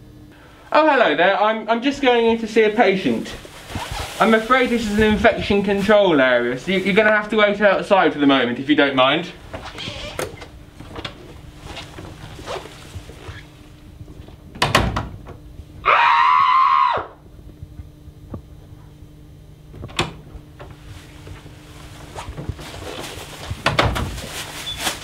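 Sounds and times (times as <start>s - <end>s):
doors swinging shut with thud: 14.5s - 15.4s, 23.6s - 24.2s.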